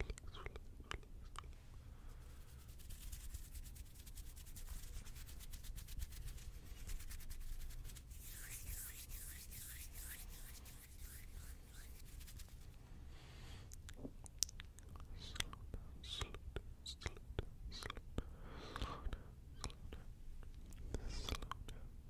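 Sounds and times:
hands rubbing with crackles: 2.2 - 12.8.

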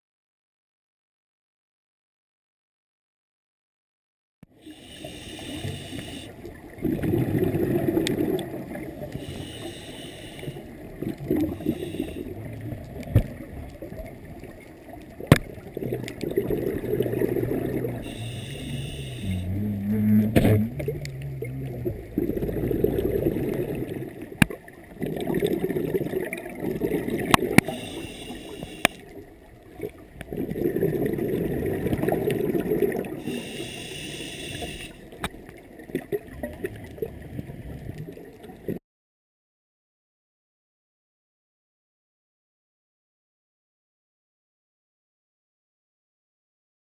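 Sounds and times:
scuba regulator inhale hiss: 4.6 - 6.4, 9.1 - 10.7, 11.4 - 12.4, 18.0 - 19.5, 27.6 - 29.2, 33.1 - 35.1
exhaled bubbles gurgling: 4.7 - 38.8.

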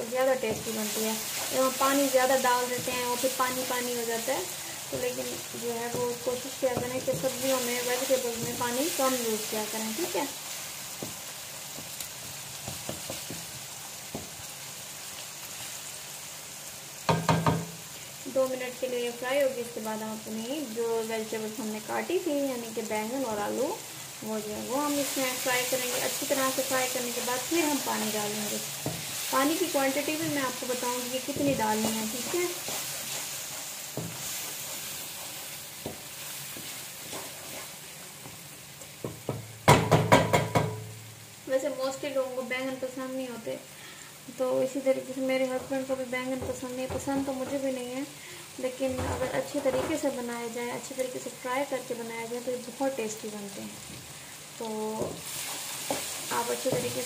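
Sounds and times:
spices sizzling in hot oil: 0.0 - 57.0
wooden spatula stirring: 0.3 - 14.4, 25.0 - 38.4
spatula knocking against pan: 17.1 - 17.7, 39.0 - 40.9
wooden spatula scraping pan: 28.0 - 37.8.

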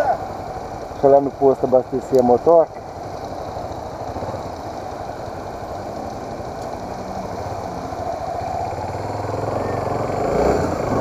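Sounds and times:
motorcycle engine idling: 0.0 - 11.0.

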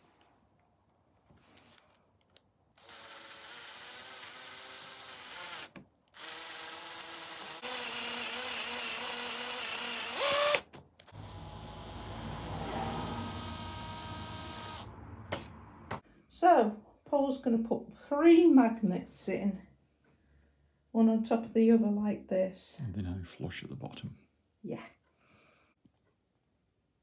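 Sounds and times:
electric drill drilling into plastic: 2.8 - 12.2, 13.0 - 15.4.

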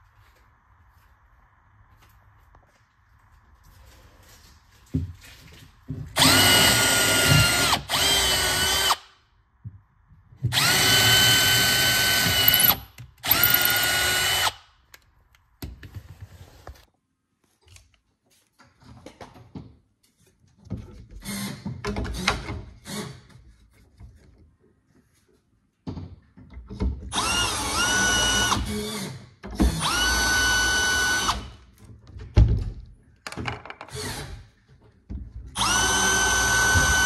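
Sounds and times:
cordless drill boring wood: 6.2 - 9.1, 10.5 - 14.6, 27.1 - 29.1, 29.7 - 31.5, 33.9 - 34.3, 35.6 - 37.0.

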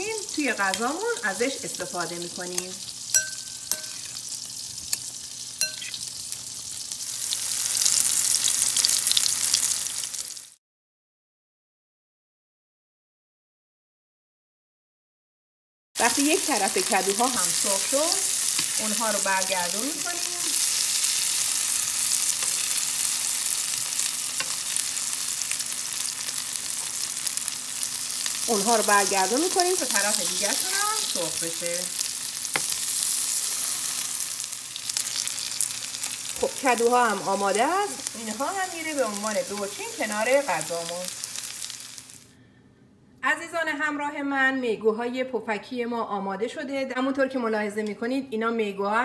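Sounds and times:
frying in hot oil: 0.0 - 10.6, 16.0 - 42.3
fork clinking on bowl: 3.1 - 4.2, 5.6 - 6.0.

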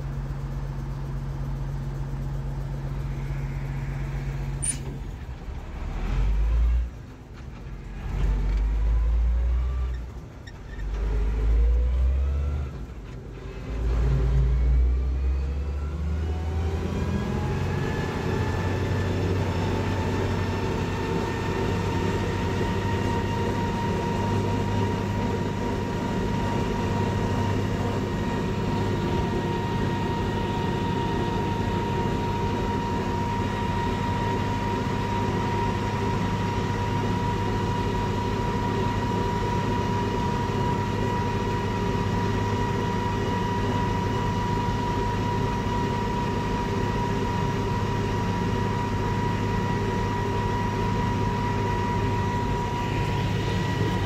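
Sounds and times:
tractor diesel engine: 0.0 - 54.0
high whine: 2.0 - 5.6, 40.5 - 54.0.

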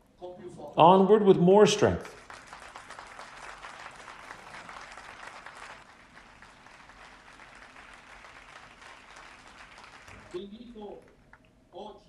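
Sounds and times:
audience applauding faintly: 2.0 - 10.4.

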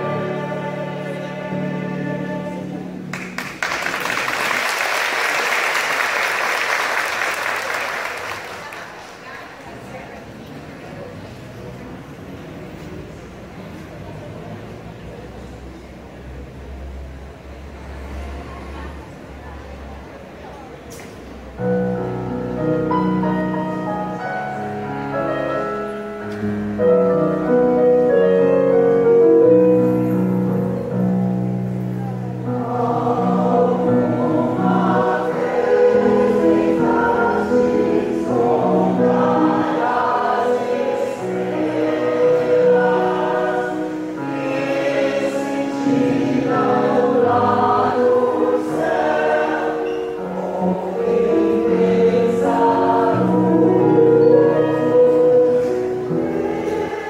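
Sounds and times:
choir singing in parts: 0.0 - 3.5, 32.4 - 57.0.

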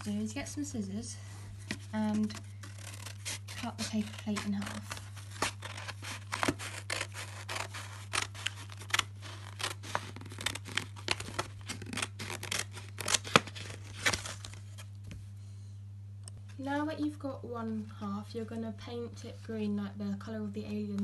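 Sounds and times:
scissors cutting paper plate: 2.2 - 13.8.

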